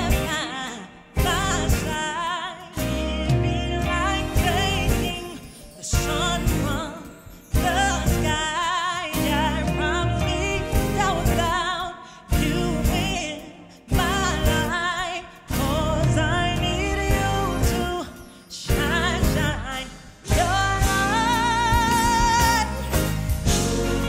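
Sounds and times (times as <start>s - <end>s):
woman singing with vibrato: 0.0s - 24.0s
band playing chords: 20.3s - 24.0s.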